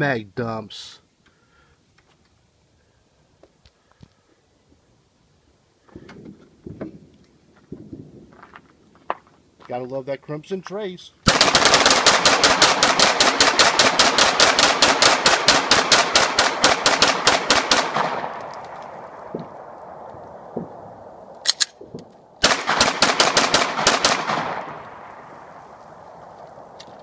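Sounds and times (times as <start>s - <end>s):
rapid pistol fire: 11.3s - 18.4s, 22.4s - 25.3s
gunshot echo ringing: 11.3s - 26.8s.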